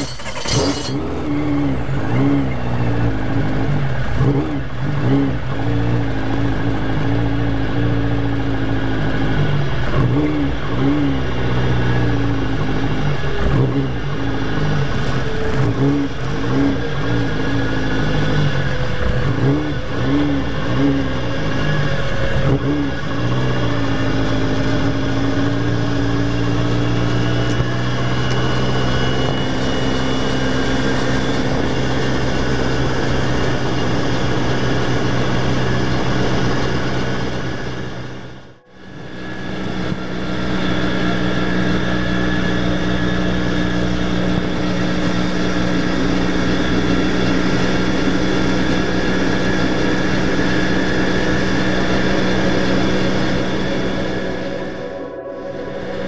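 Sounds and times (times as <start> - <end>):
helicopter engine and rotor running: 14.8 - 56.0.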